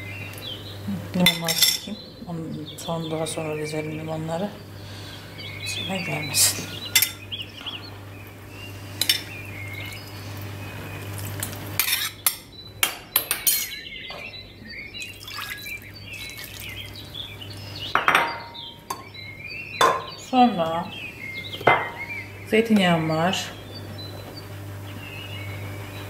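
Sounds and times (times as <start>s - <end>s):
metal spoon scraping a pot: 11.8s - 12.4s.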